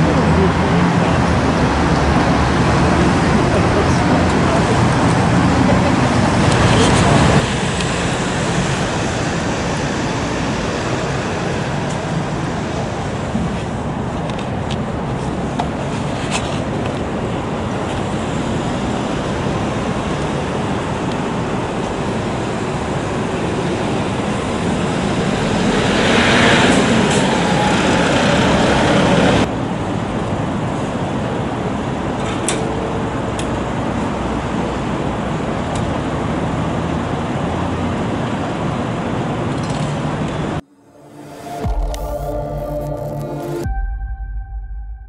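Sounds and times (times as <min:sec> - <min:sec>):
vehicle passing by: 0:00.0 - 0:14.0, 0:23.6 - 0:29.5
city road traffic: 0:00.0 - 0:43.7.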